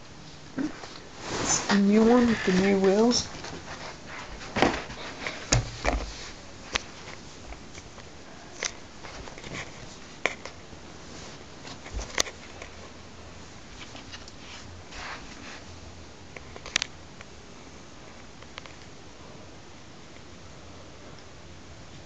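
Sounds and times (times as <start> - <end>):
soft rustling: 0.2 - 7.9, 8.5 - 15.8.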